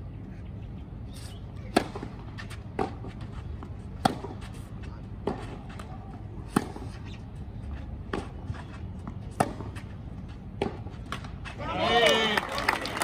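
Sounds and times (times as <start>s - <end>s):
tennis ball hit by racket: 1.7s - 3.4s, 4.0s - 7.2s, 8.1s - 9.9s, 10.6s - 11.6s.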